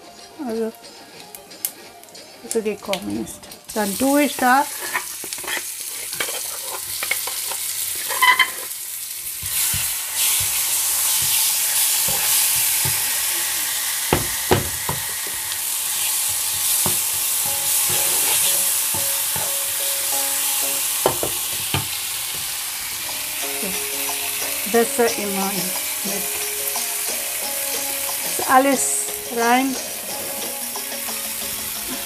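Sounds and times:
hot oil sizzling in a frying pan: 3.4 - 32.0
wooden spatula scraping a pan: 4.6 - 8.8, 9.4 - 13.2, 16.1 - 19.8.

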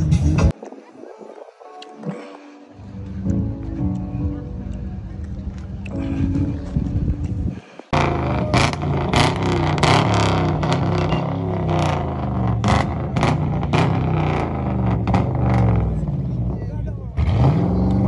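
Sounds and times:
car engine revving: 7.4 - 18.0.

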